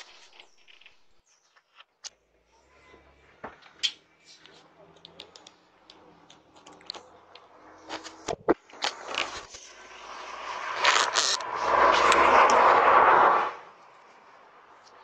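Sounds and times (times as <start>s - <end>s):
scraping and clicking handling noise: 3.6s - 9.7s
rubbing rush: 7.5s - 14.6s.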